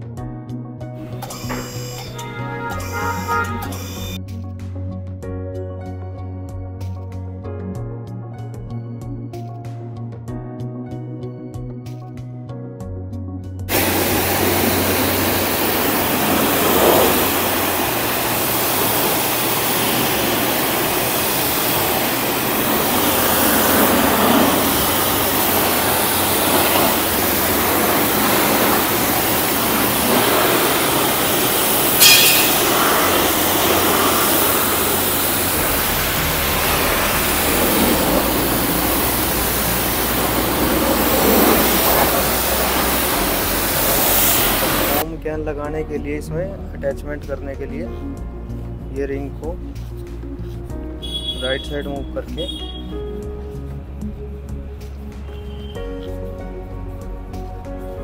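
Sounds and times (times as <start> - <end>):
pressure washer jet spraying water: 1.1 - 4.2, 13.7 - 45.0
low hum: 13.7 - 45.0.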